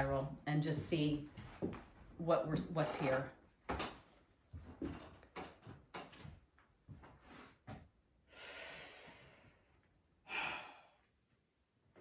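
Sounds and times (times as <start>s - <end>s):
person breathing: 8.3s - 11.2s.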